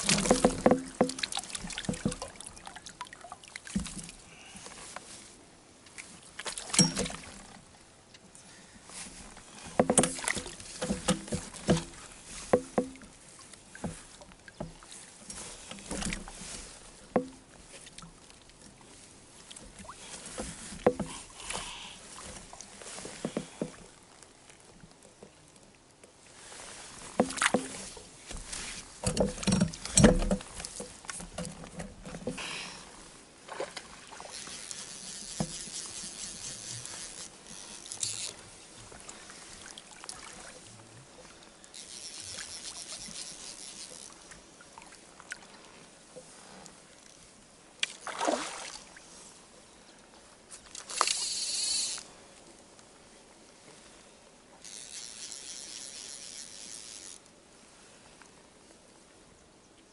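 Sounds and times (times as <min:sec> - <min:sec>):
water splashing: 0:00.0 - 0:04.1, 0:33.4 - 0:37.2, 0:39.0 - 0:40.7, 0:47.8 - 0:49.0
fly reel buzzing: 0:34.2 - 0:38.4, 0:41.7 - 0:44.2, 0:50.9 - 0:52.1, 0:54.6 - 0:57.2.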